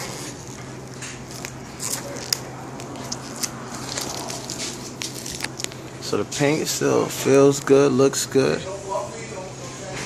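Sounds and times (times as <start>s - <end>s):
vinyl wrap peeling and crackling: 0.0s - 6.0s.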